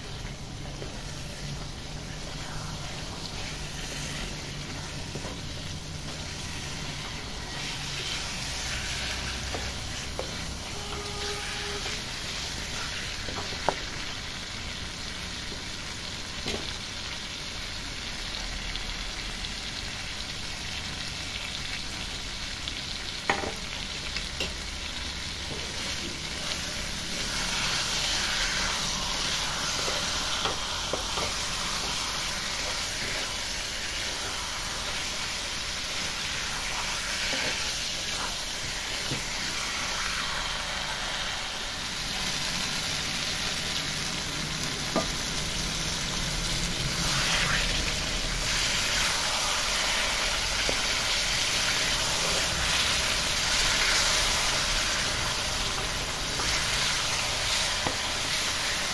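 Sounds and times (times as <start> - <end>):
spatula stirring in wok: 0.0 - 14.0, 25.4 - 40.6
chicken sizzling in hot oil: 0.0 - 58.9.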